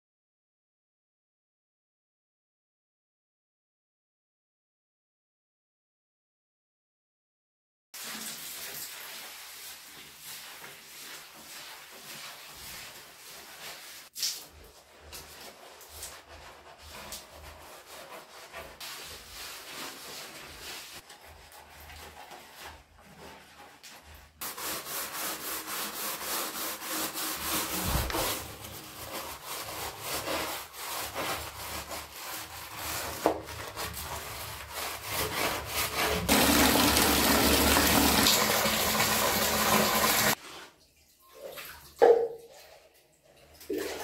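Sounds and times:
water running: 0:08.0 - 0:18.0, 0:25.9 - 0:32.0, 0:36.0 - 0:44.0
brush scrubbing wet tiles: 0:08.0 - 0:40.8.

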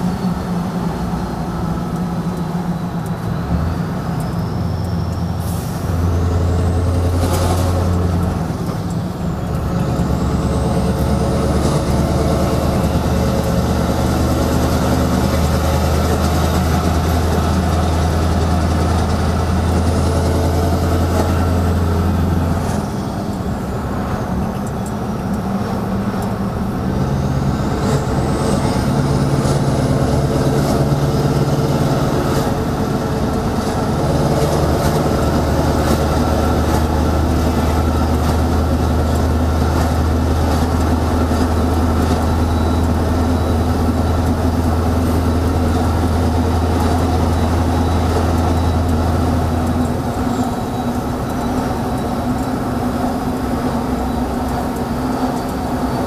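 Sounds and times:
diesel truck engine with loud exhaust: 0:00.0 - 0:56.0.

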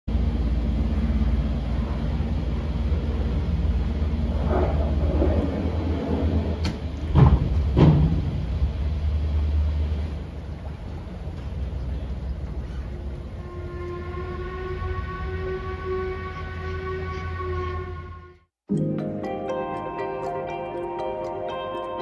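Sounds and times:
propeller churning water: 0:00.1 - 0:14.0
boat engine rumbling: 0:00.1 - 0:18.4.

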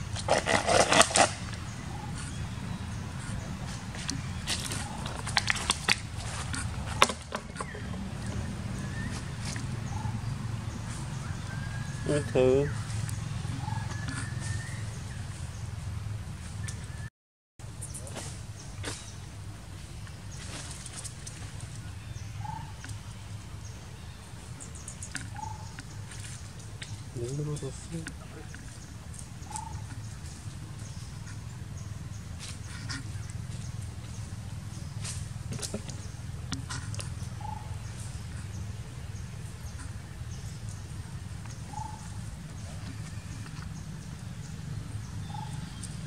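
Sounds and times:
animal calls: 0:00.0 - 0:15.3, 0:27.5 - 0:31.6, 0:35.6 - 0:38.8, 0:39.5 - 0:46.0
small clicks and rustles: 0:20.3 - 0:21.9.

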